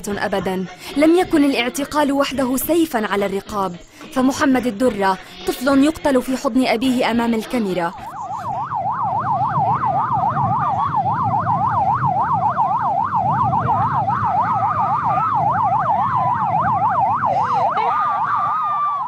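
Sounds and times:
siren yelping: 7.9s - 19.0s
low rumble: 8.1s - 17.9s.

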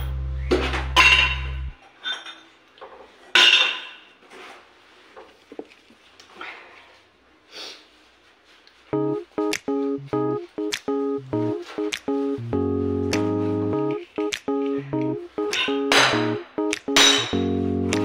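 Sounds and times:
low steady hum: 0.0s - 1.8s.

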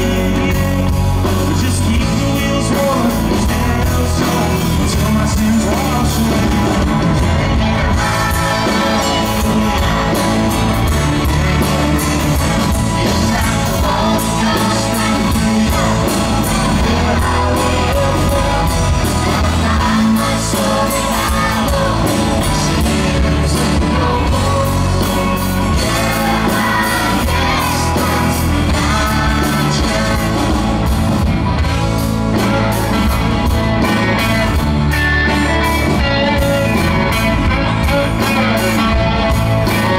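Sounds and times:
lead vocalist singing: 0.0s - 31.1s
live rock band playing: 0.0s - 39.9s
children singing: 2.8s - 31.0s.

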